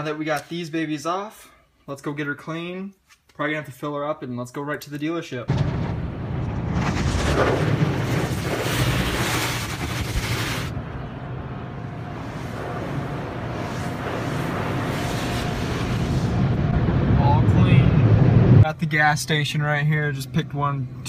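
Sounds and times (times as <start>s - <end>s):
water spraying: 8.0s - 10.7s, 12.1s - 16.4s.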